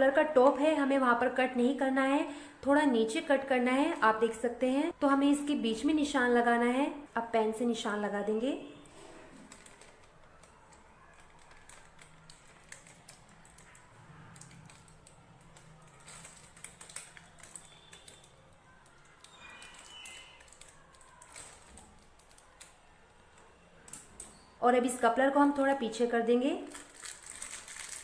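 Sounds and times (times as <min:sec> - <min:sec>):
plastic crackling: 0:08.8 - 0:28.0.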